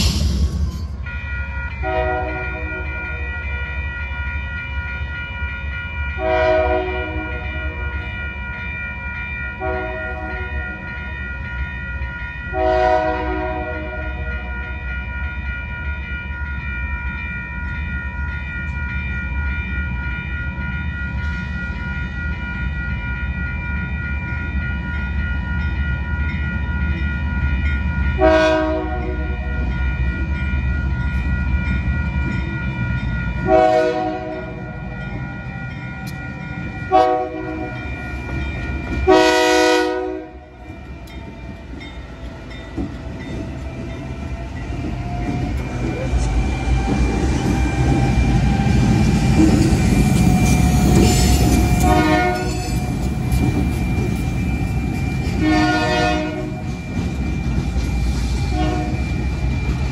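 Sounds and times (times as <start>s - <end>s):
crossing signal bell ringing: 0.0s - 59.9s
diesel locomotives rumbling: 0.0s - 59.9s
locomotive horn blasts: 1.8s - 2.9s, 6.2s - 7.4s, 9.6s - 10.6s, 12.5s - 14.2s, 28.2s - 29.3s, 33.4s - 34.5s, 36.9s - 37.7s, 39.1s - 40.4s, 51.8s - 52.7s, 55.4s - 56.6s, 58.5s - 59.0s.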